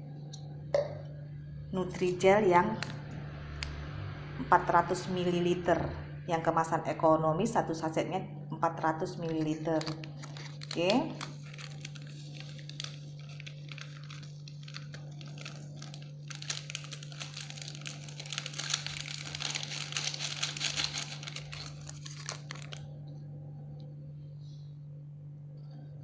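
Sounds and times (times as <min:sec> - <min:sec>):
steady low hum: 0:00.0 - 0:26.0
paper sachet crinkling: 0:09.1 - 0:23.0.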